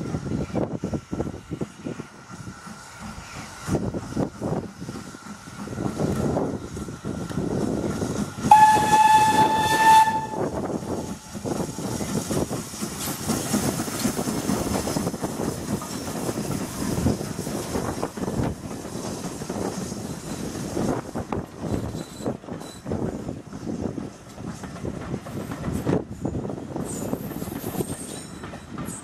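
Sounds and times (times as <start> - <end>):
locomotive exhaust and steam hissing: 0.0 - 29.0
steam locomotive whistle: 8.4 - 11.2.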